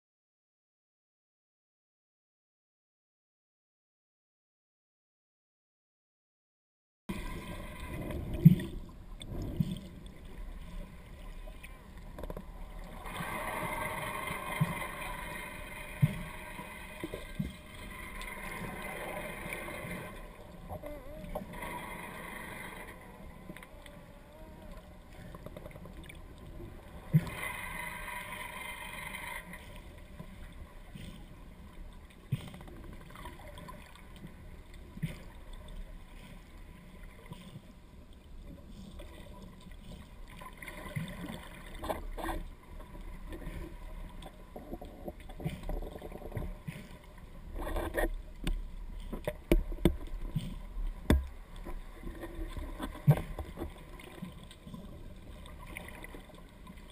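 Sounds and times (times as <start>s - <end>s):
muffled underwater noise: 7.1s - 37.4s.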